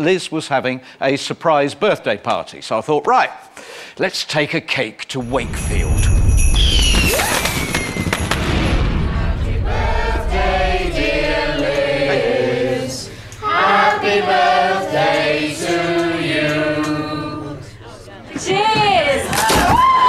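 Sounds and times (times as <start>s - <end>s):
group of voices singing: 8.9s - 17.8s.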